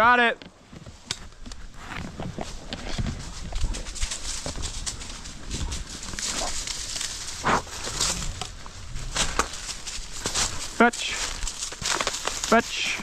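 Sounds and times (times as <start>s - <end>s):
brush and twigs rustling: 0.4s - 13.0s
twigs snapping: 5.8s - 13.0s.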